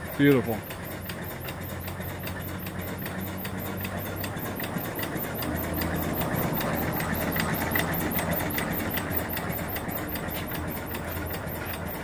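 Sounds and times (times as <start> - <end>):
small steam engine running: 0.0 - 12.0.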